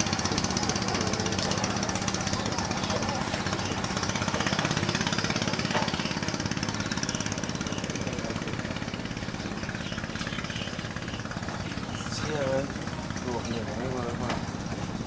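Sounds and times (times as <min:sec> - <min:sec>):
boat engine chugging: 0:00.0 - 0:15.0.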